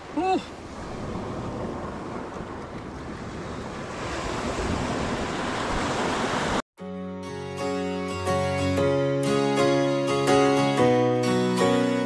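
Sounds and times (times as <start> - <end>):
surf breaking on rocky shore: 0.0 - 6.6
wind rumbling on microphone: 0.0 - 6.6.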